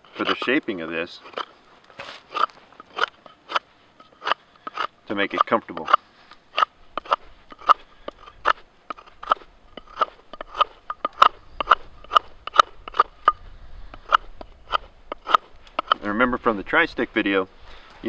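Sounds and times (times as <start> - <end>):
knife whittling wood: 1.2 - 6.0, 6.6 - 13.2, 14.0 - 16.0.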